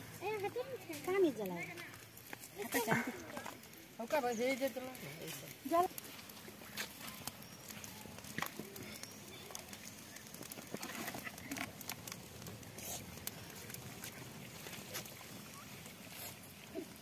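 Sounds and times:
wood fire crackling: 0.0s - 17.0s.

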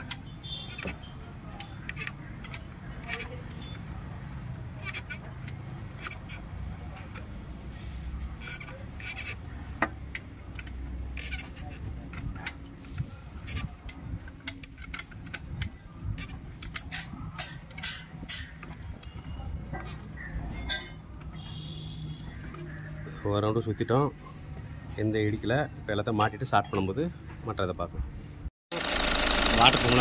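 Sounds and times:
metallic clicks of wrench turning engine: 0.0s - 3.9s, 10.1s - 12.6s, 13.5s - 19.2s, 28.8s - 30.0s.

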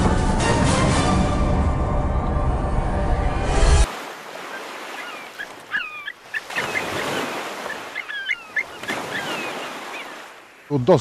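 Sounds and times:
surf: 3.6s - 11.0s
flock of birds calling: 4.3s - 10.7s.

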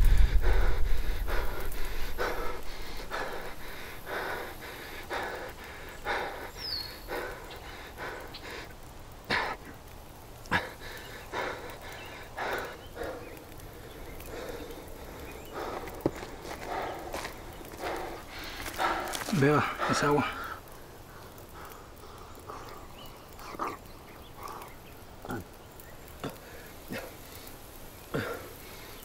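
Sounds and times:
low rumble: 0.0s - 2.9s
man breathing heavily: 0.0s - 25.5s, 26.1s - 29.0s.

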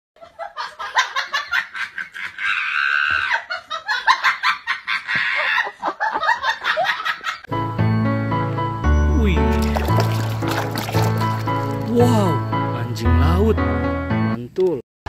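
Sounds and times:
people laughing and giggling: 0.2s - 7.5s.

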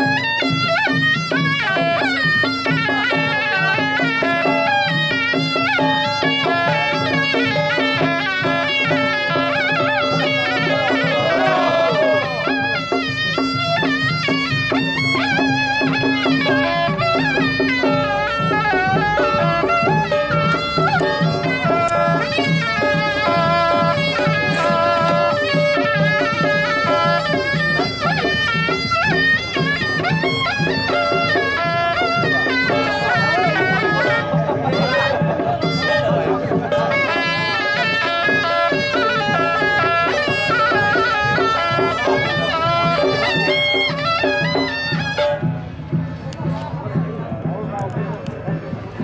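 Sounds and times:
light percussion strokes: 0.0s - 49.0s
shawm playing reedy melody: 0.0s - 49.0s
held drone note: 17.8s - 27.8s.

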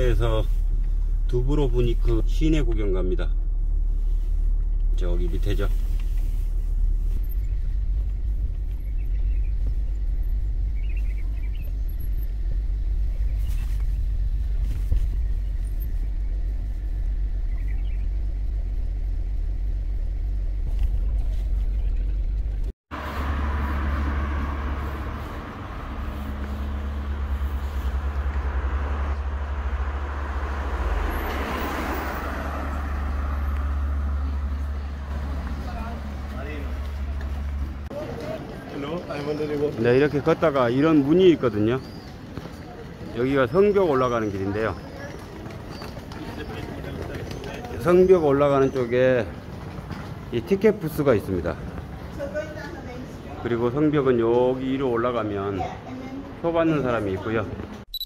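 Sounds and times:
car engine and road noise: 0.0s - 58.0s
outdoor street noise: 0.0s - 58.0s
van driving past: 22.9s - 52.4s.

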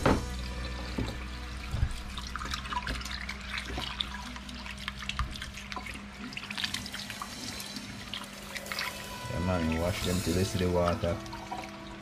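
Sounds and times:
tap water splashing into sink: 0.0s - 7.0s.

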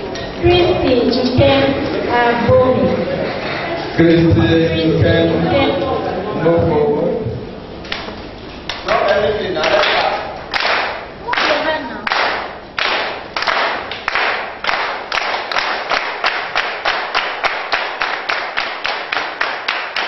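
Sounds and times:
people clapping in rhythm: 8.6s - 20.0s.

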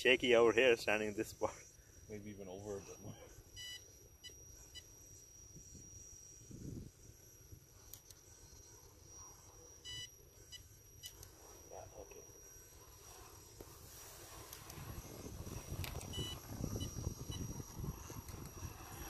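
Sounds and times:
steady high-pitched whine: 0.0s - 19.0s.

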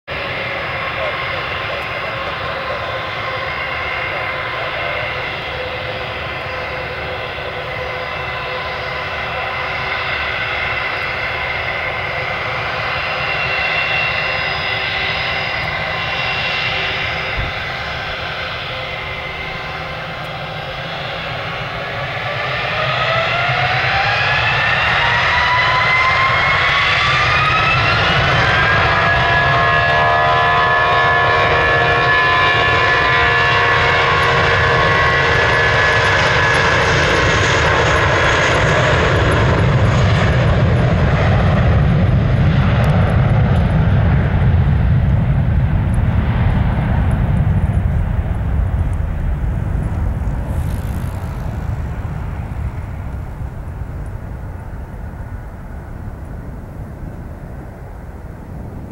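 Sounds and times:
deep jet rumble: 0.0s - 58.9s
jet engines whining: 0.1s - 58.9s.

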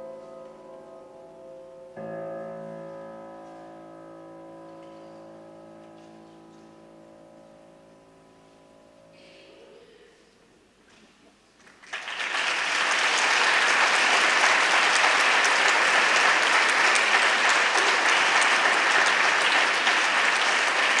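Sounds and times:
audience applauding: 11.6s - 21.0s.

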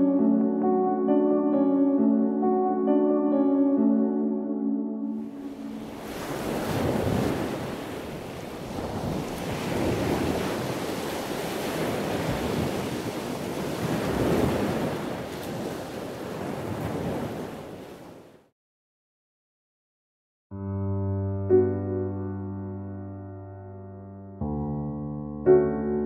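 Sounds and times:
sea waves washing in: 5.2s - 18.4s.

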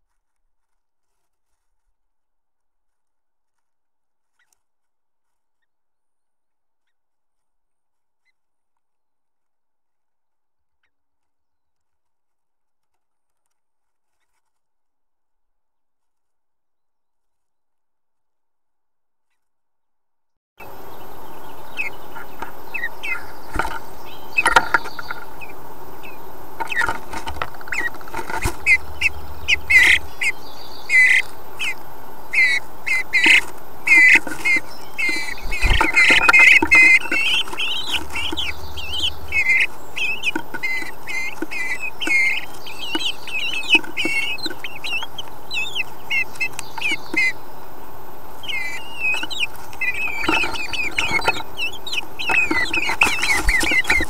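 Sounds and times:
birds chattering calls: 20.6s - 54.0s
birds scratching nest material: 20.6s - 54.0s
steady hiss: 20.6s - 54.0s.

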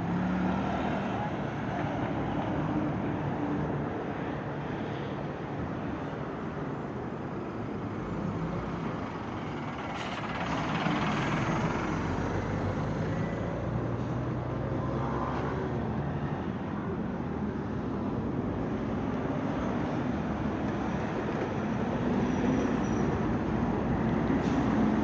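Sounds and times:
loud vehicle passing: 0.0s - 1.8s, 9.2s - 17.1s
cars passing on street: 0.0s - 25.0s.

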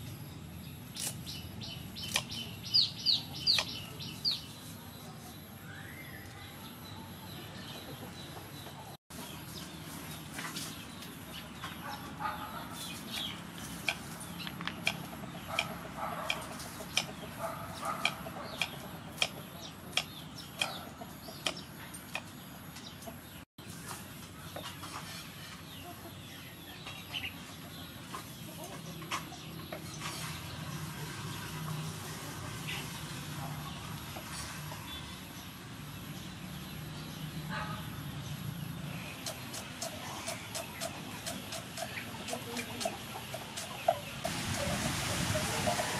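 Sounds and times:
chickens clucking: 1.9s - 5.3s, 7.4s - 34.9s, 39.1s - 45.9s.

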